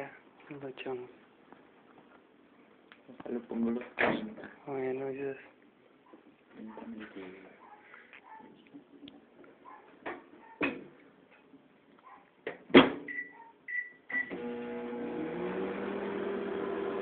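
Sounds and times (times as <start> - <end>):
short keypad beeps: 13.1 - 14.3
microwave oven humming: 14.2 - 17.0.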